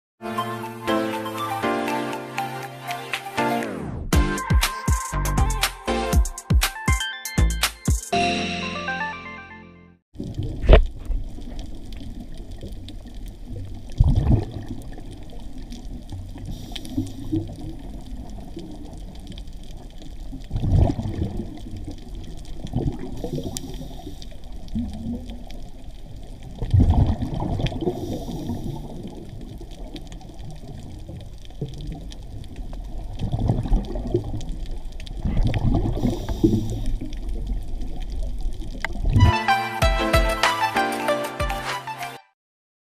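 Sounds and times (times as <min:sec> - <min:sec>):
exhaled bubbles gurgling: 0:10.2 - 0:39.3
low underwater rumble: 0:10.2 - 0:39.3
faint inhalation hiss: 0:16.4 - 0:17.7, 0:23.1 - 0:24.8, 0:27.8 - 0:29.4, 0:35.7 - 0:37.3.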